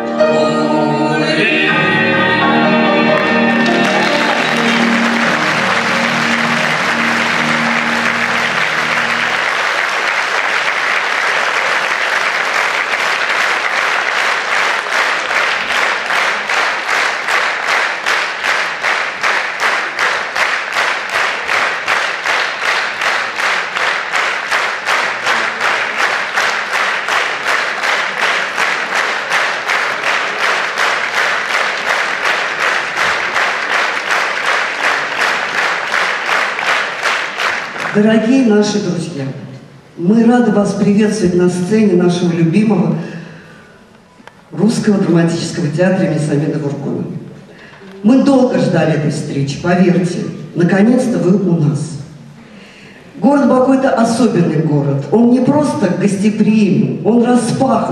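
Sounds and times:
stage music: 0.0 - 13.1
audience applauding: 1.5 - 38.8
rhythmic clapping in unison: 2.7 - 38.8.

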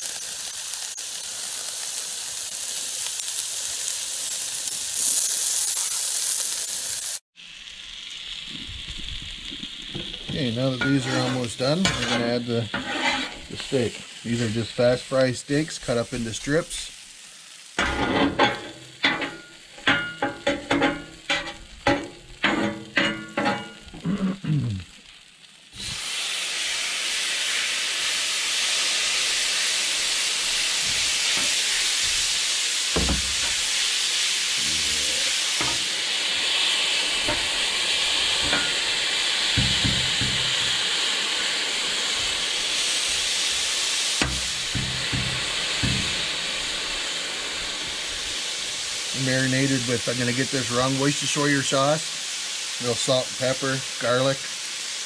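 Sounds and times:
steak sizzling on griddle: 0.0 - 55.0
metal spatula knocking on steel: 39.6 - 40.6, 44.2 - 46.2
sharp ringing knocks: 39.6 - 40.6, 44.2 - 46.2.

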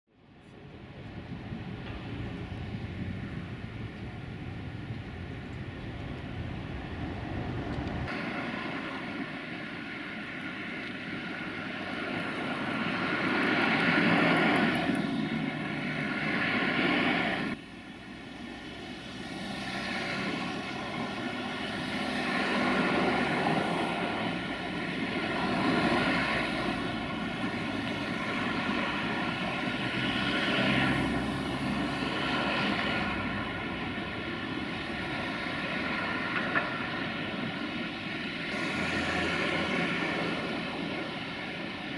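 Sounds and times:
cars and buses driving past: 0.1 - 41.9
steady traffic hum: 0.1 - 41.9.

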